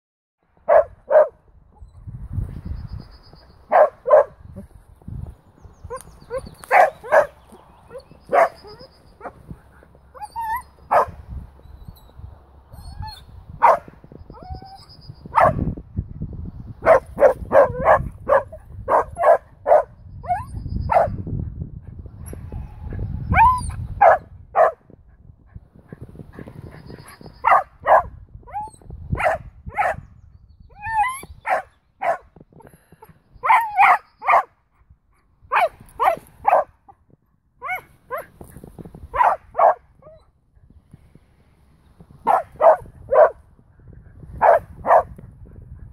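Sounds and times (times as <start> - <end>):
small dog barking: 0.7 - 1.4, 3.7 - 4.4, 6.7 - 7.4, 8.3 - 9.4, 10.9 - 11.2, 13.6 - 13.9, 15.3 - 15.6, 16.8 - 19.9, 23.4 - 24.8, 27.4 - 28.1, 29.2 - 30.0, 31.4 - 32.3, 33.4 - 34.5, 35.5 - 36.8, 37.6 - 38.3, 39.1 - 40.2, 42.2 - 43.4, 44.4 - 45.1
dog yips and whines: 5.9 - 7.3, 7.9 - 12.1, 12.7 - 15.6, 16.9 - 21.2, 22.2 - 24.8, 26.7 - 30.0, 30.7 - 32.2, 33.4 - 34.5, 37.6 - 38.3, 39.1 - 40.3.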